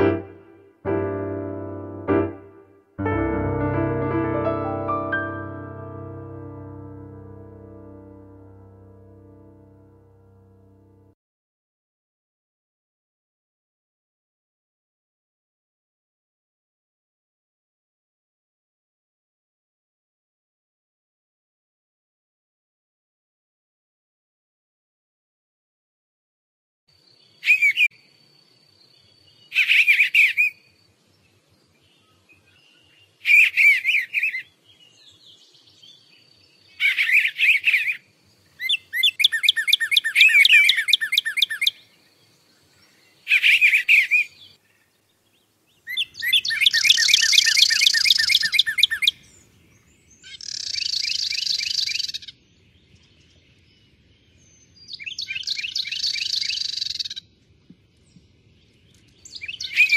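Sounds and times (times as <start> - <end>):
songbirds singing: 26.9 - 59.9.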